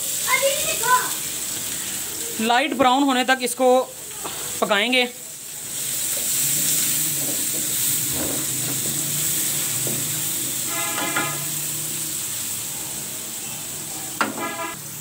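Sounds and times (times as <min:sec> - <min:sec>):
onions sizzling in oil: 0:00.0 - 0:15.0
wooden spatula scraping wok: 0:05.9 - 0:11.6.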